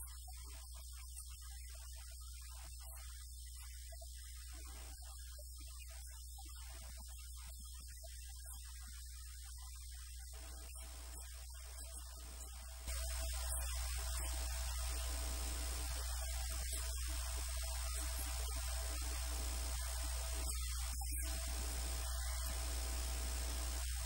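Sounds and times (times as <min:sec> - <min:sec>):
low electrical mains hum: 0:10.4 - 0:24.0.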